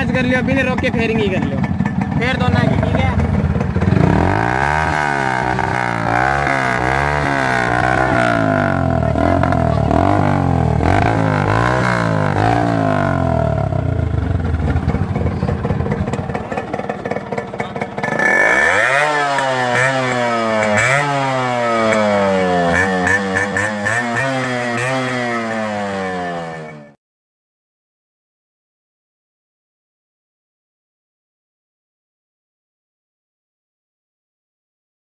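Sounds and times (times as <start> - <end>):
motorcycle engine revving: 0.0 - 27.0
two-stroke motorcycle revving: 0.0 - 27.0.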